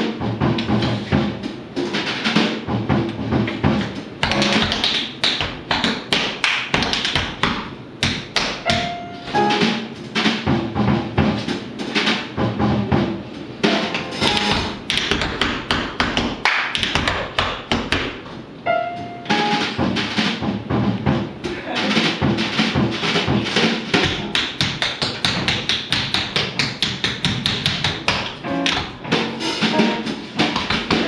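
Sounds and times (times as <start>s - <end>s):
drums: 0.0s - 31.0s
jazz piano: 0.0s - 31.0s
tap shoes on wooden floor: 3.1s - 8.9s, 13.9s - 18.4s, 24.0s - 29.2s, 30.4s - 31.0s.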